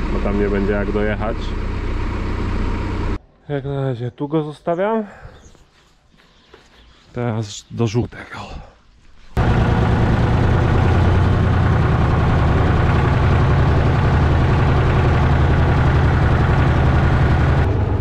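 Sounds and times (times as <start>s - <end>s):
tractor diesel engine from cab: 0.0s - 3.2s, 9.4s - 18.0s.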